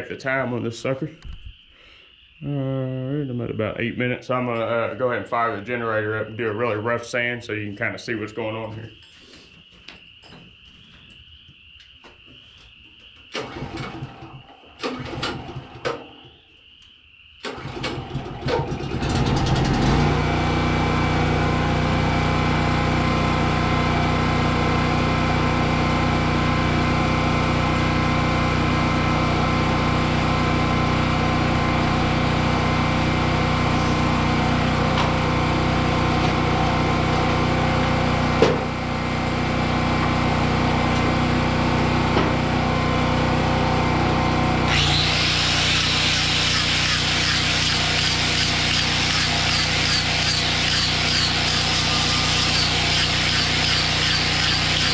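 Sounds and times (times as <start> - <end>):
generator engine starting and running: 13.1 - 16.4, 17.4 - 54.9.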